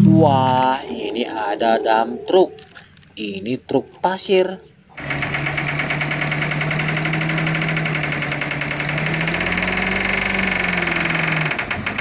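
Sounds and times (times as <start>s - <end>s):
diesel truck engine running: 4.8s - 12.0s
fast clatter: 5.0s - 12.0s.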